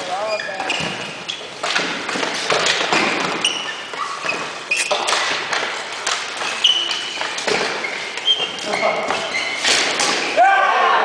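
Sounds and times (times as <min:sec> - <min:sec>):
shoe squeaks on gym floor: 0:00.0 - 0:01.6, 0:02.9 - 0:05.4, 0:06.4 - 0:10.0.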